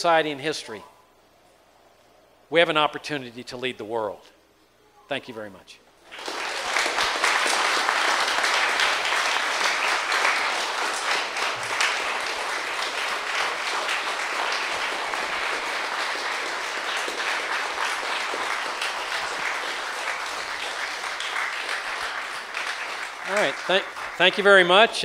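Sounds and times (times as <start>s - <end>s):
audience applause: 6.0s - 24.9s.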